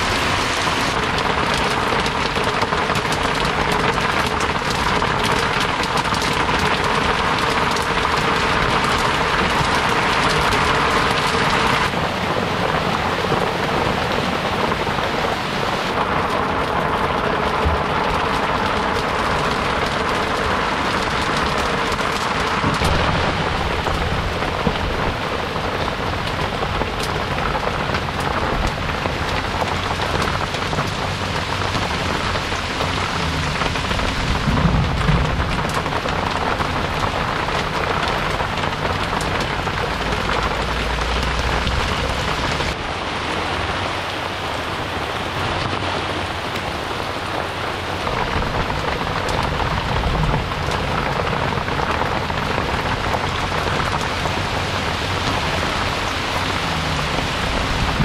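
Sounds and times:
heavy rain pouring: 0.0s - 58.0s
low rumbles of thunder: 15.9s - 42.8s, 48.0s - 58.0s.

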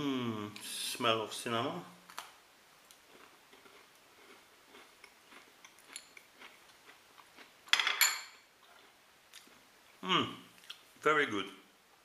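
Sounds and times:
cookie crunching: 2.9s - 7.5s.

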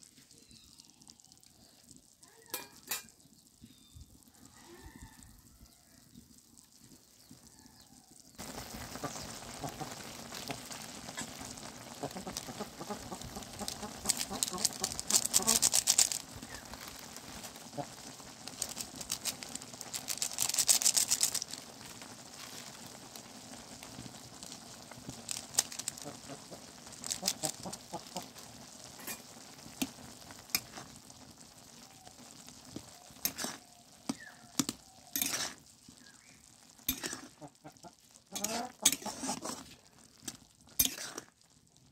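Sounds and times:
noodles sizzling in a wok: 0.0s - 41.9s
metal spoon scraping a wok: 29.0s - 30.0s, 30.6s - 30.9s, 33.2s - 35.7s, 36.8s - 37.4s, 38.4s - 41.4s.

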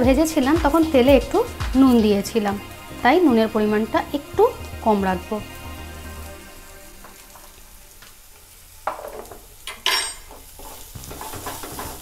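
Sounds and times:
paste frying with light sizzle: 0.0s - 12.0s
spatula scraping a pan: 10.2s - 12.0s.

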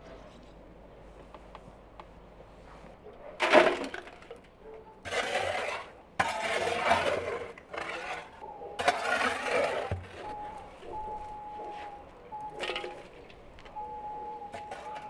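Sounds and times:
metal shovel scraping brick floor: 3.4s - 10.5s, 11.7s - 13.2s, 14.5s - 15.0s.

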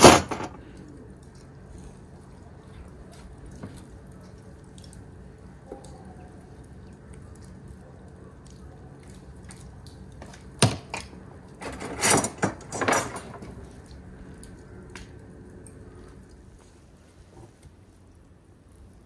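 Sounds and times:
steady low hum: 0.0s - 19.0s
clattering handling noise: 11.6s - 13.6s.

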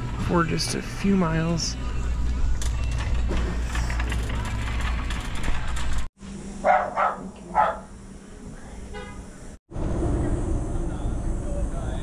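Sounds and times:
shop background din: 0.0s - 8.1s
dog barking: 6.6s - 7.9s.

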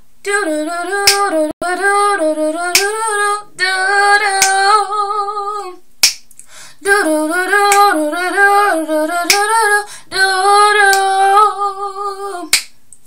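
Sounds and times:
woman singing unaccompanied: 0.2s - 5.8s, 6.7s - 12.6s
finger snaps: 2.8s - 3.0s, 6.0s - 6.5s, 12.5s - 13.0s.

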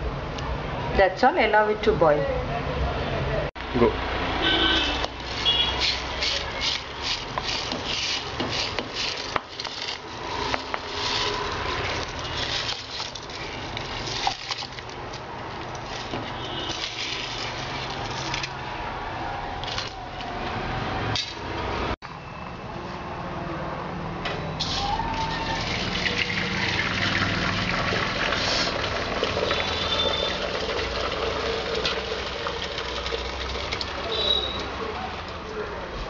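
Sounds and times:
rubbing and scraping strokes: 5.2s - 15.0s, 15.7s - 18.5s.

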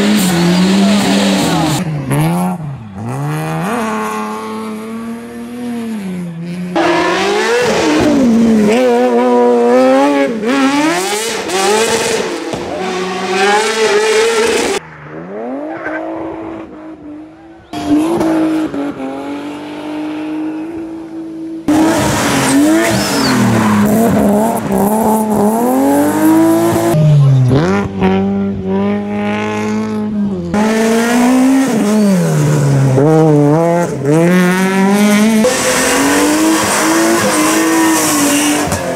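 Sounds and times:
race car engines revving: 0.0s - 38.9s
tyre squeal: 22.4s - 24.1s.

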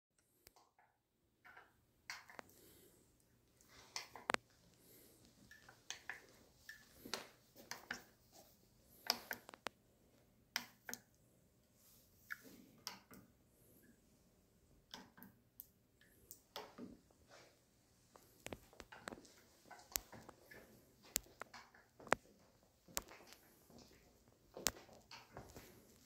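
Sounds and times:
light clicks and taps: 0.2s - 2.7s, 3.6s - 9.8s, 10.5s - 11.2s, 12.2s - 13.9s, 18.1s - 26.0s.

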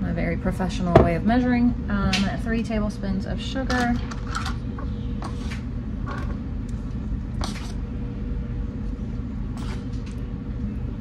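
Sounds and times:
spoon scraping sugar: 5.2s - 5.6s, 7.4s - 7.8s, 9.6s - 9.9s.

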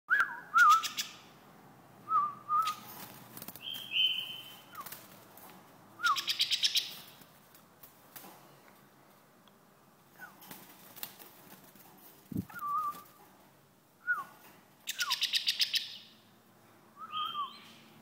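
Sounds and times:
bird whistle: 0.1s - 1.2s, 3.6s - 4.9s, 6.0s - 6.9s, 17.0s - 17.8s.

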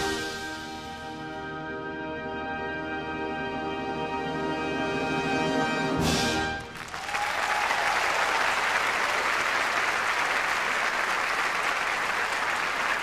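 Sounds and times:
audience applause: 6.6s - 13.0s.

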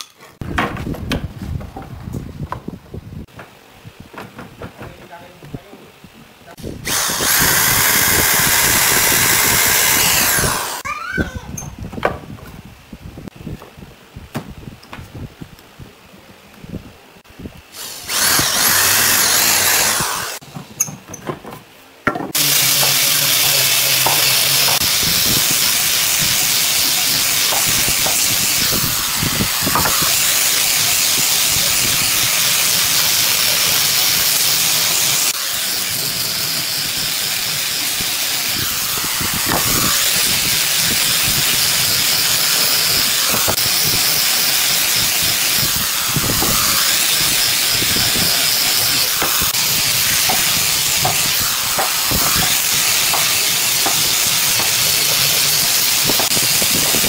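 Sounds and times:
angle grinder sanding wood: 6.5s - 10.9s, 17.8s - 20.5s, 22.4s - 57.0s
electric drill boring into wood: 6.6s - 11.0s, 17.7s - 20.4s, 22.4s - 57.0s.

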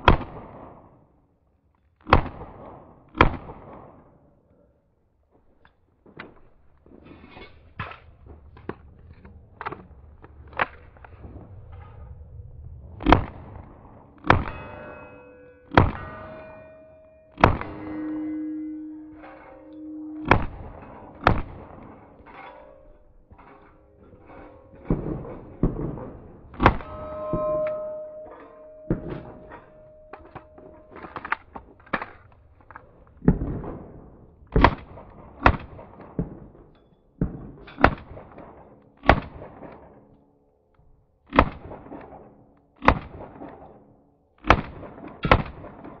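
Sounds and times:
pistol shots: 14.2s - 14.9s.

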